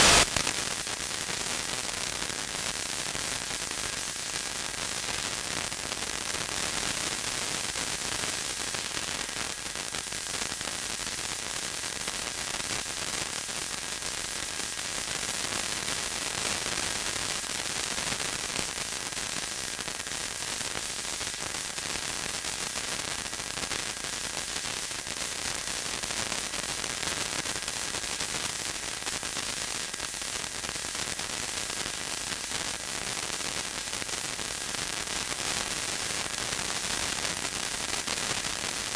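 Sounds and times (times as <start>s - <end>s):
radio static hiss: 0.0s - 0.5s.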